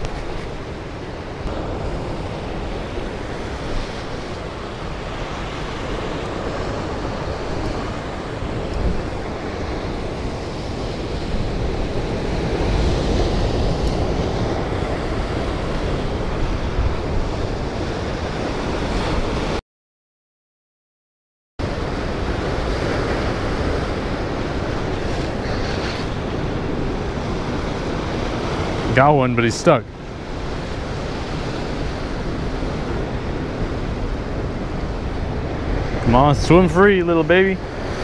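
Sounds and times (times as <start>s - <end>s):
ocean surf washing over rocks: 0.0s - 19.6s, 21.6s - 38.0s
wind buffeting microphone: 0.0s - 19.6s.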